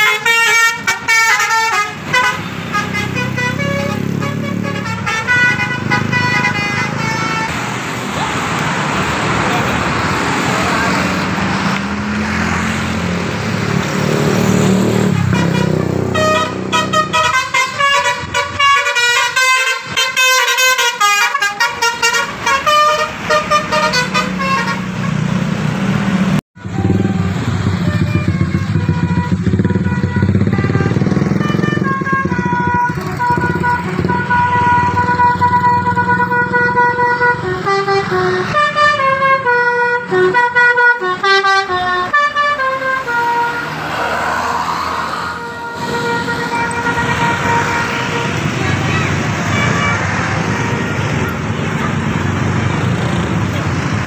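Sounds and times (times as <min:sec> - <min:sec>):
musical air horn: 0:00.0 - 0:07.7, 0:14.9 - 0:25.3, 0:26.6 - 0:44.0, 0:45.0 - 0:52.2
bus engine rumble: 0:00.0 - 0:54.0.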